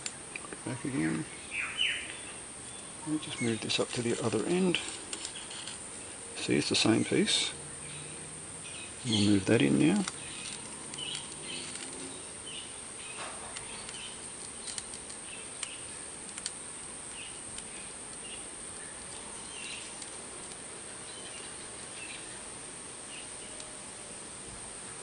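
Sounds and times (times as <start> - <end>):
steady background hiss: 0.0 - 25.0
small clicks: 13.5 - 16.6.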